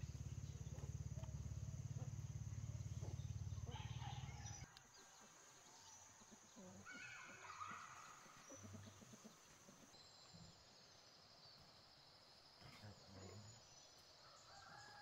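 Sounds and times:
distant animal call: 0.0 - 4.7, 6.3 - 9.9.

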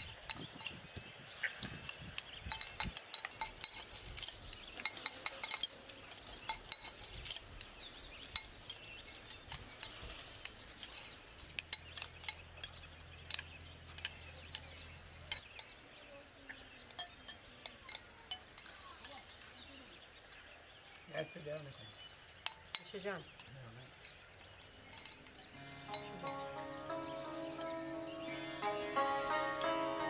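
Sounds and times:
spoons tapping and scraping glass: 0.0 - 15.8, 16.8 - 19.3, 22.3 - 23.6, 24.4 - 26.6.

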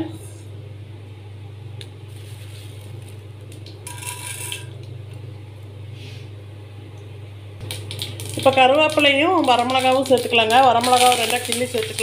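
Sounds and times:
steady low hum: 0.0 - 12.0
seeds popping in hot oil: 1.8 - 5.3, 7.6 - 12.0.

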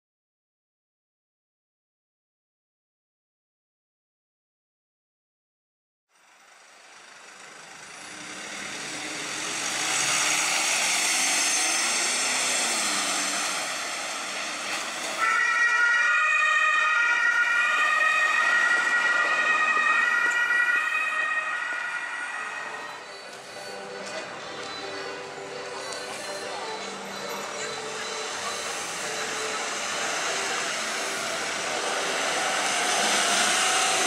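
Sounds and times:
road noise: 6.1 - 34.0
ambulance two-tone siren: 13.5 - 34.0.

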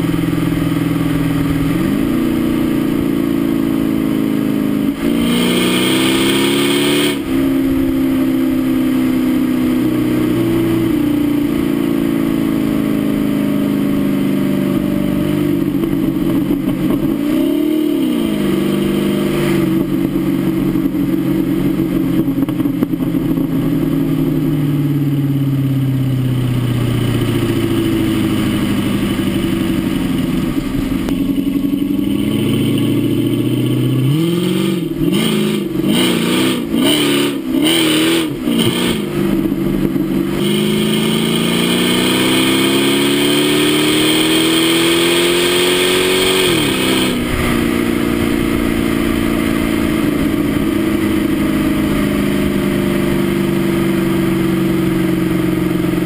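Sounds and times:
car engine at speed: 0.0 - 56.0.

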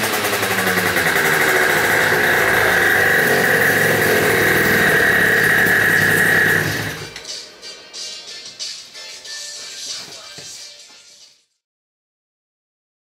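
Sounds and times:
two-stroke scooter engine running: 0.0 - 7.2.

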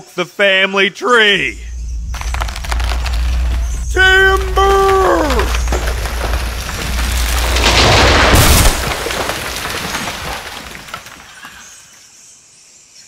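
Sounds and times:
cartoon crash boom: 1.4 - 9.5
small crackles: 1.4 - 11.8.

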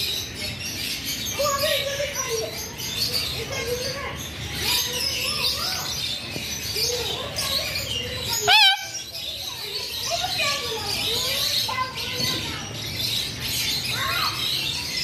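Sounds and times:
birds chirping and calling: 0.0 - 15.0
loud short warbling bird call: 8.3 - 9.1.

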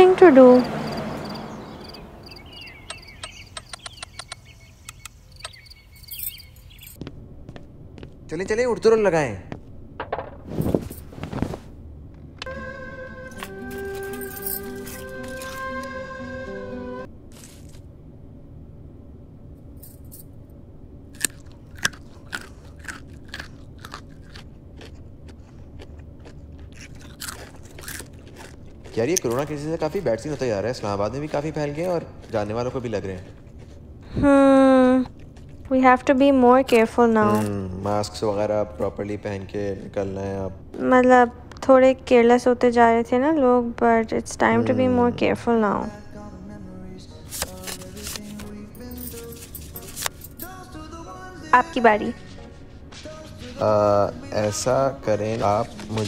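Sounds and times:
birds twittering: 0.0 - 7.0
crickets chirping: 0.0 - 7.1
sharp clicks: 2.8 - 6.4
popcorn crunching: 17.3 - 17.9, 21.2 - 34.2, 35.0 - 36.1, 36.8 - 38.3, 47.3 - 50.7.

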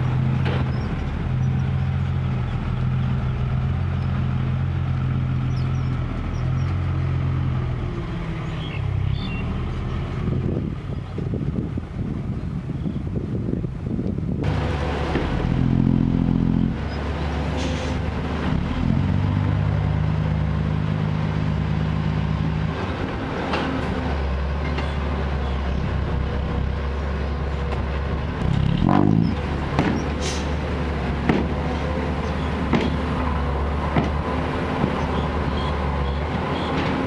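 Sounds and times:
diesel truck engine under load: 0.0 - 37.0
sharp knocks: 31.2 - 31.6.

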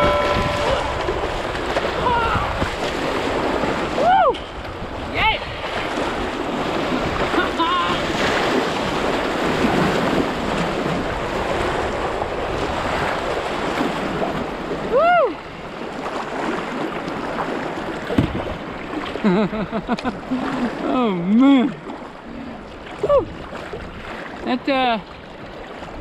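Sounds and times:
wind buffeting microphone: 0.0 - 19.0
rushing whitewater: 0.0 - 19.3
person whooping: 2.0 - 2.6, 4.0 - 4.4, 14.9 - 15.4.

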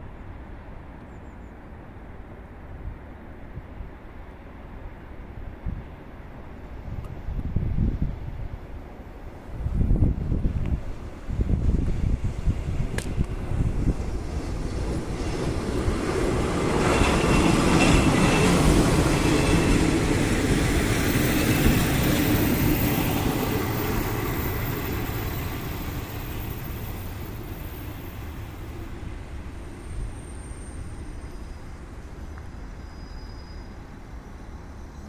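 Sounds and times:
train wheels rolling on rails: 9.9 - 35.0
diesel railcar engine running: 10.4 - 35.0.

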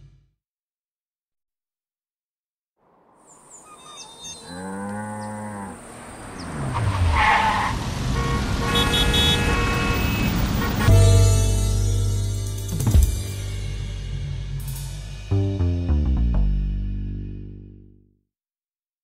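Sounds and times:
low animal call: 3.5 - 7.4
horn-like tones: 8.0 - 11.8.

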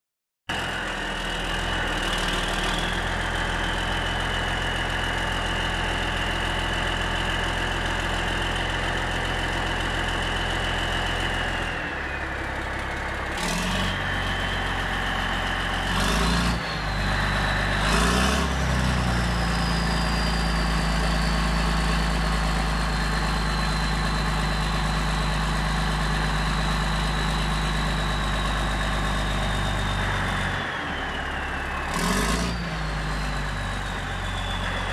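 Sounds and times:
diesel engine idling and revving: 0.5 - 34.9
turbo whistle: 10.4 - 34.9.

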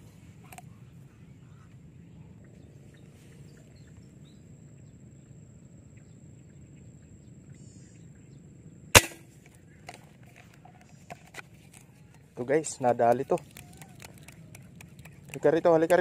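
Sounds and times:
airgun shot crack: 9.0 - 9.3.

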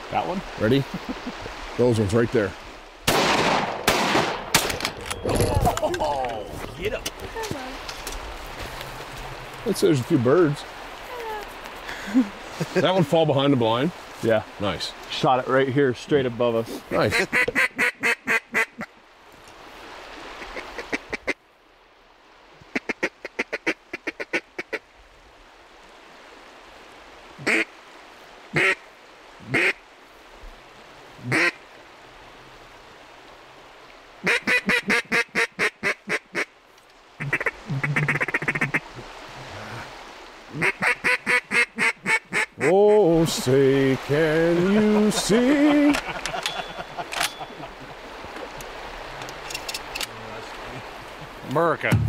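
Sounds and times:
mallards quacking: 16.9 - 18.9, 20.3 - 21.4, 22.7 - 24.8, 27.4 - 27.7, 28.5 - 28.8, 29.4 - 29.8, 31.2 - 31.6, 34.2 - 36.5, 37.2 - 39.0, 40.5 - 42.9.

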